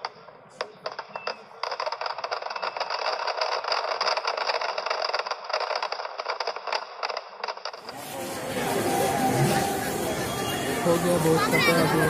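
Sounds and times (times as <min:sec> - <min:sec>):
firecrackers banging: 0:00.0 - 0:12.0
crackle of small explosions: 0:00.6 - 0:08.0.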